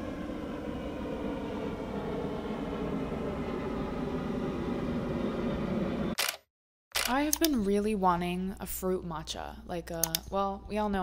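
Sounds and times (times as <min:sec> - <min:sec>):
low mechanical rumble: 0:00.0 - 0:06.2
layered mechanical hum: 0:00.0 - 0:06.4.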